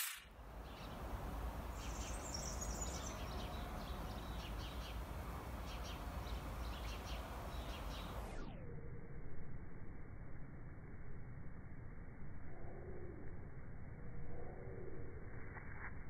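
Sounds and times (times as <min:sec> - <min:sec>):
small birds chirping: 0:00.1 - 0:08.6.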